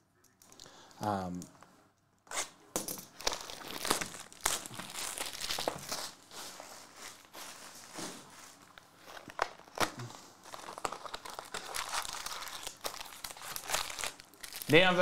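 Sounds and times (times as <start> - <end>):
plastic wrapping crinkling and tearing: 3.1 - 15.0.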